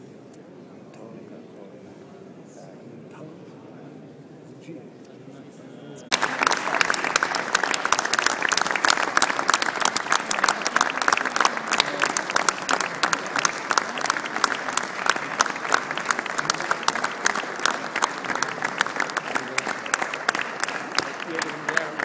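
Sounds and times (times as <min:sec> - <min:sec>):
audience applause: 0:06.1 - 0:22.0
sharp close hand claps: 0:06.1 - 0:22.0.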